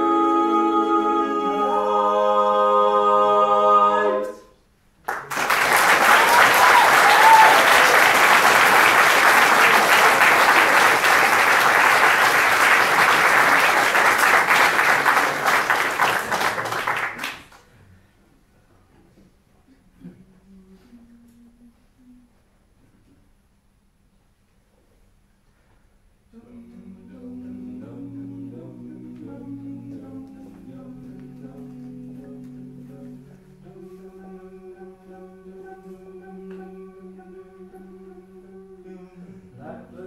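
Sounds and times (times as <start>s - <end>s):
audience clapping: 5.0s - 17.7s.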